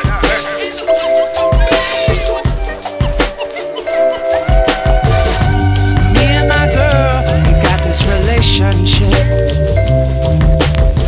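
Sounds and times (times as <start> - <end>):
drum beat: 0.0 - 9.5
pitch-bending melody: 0.0 - 10.4
bass line: 4.2 - 11.0.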